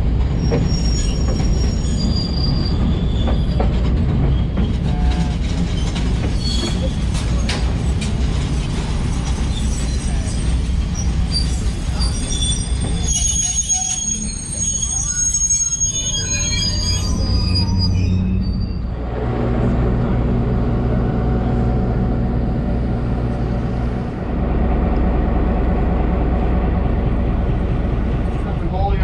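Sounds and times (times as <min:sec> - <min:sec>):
rail clicks: 0:00.0 - 0:15.5
train wheels rumbling on track: 0:00.0 - 0:29.0
high-pitched wheel squeals: 0:00.3 - 0:03.7, 0:09.3 - 0:19.0.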